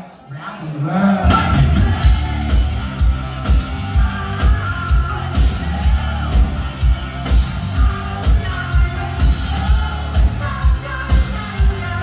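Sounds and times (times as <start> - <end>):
metal band playing live: 0.0 - 12.0
person singing: 3.8 - 12.0.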